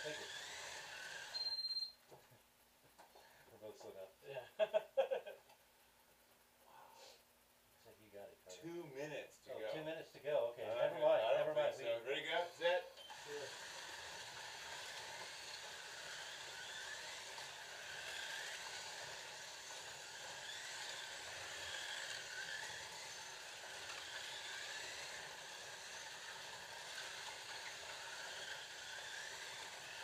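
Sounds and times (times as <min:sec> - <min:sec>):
slot car motors whining: 0:00.0 - 0:01.9, 0:12.2 - 0:30.0
steady hiss: 0:02.2 - 0:30.0.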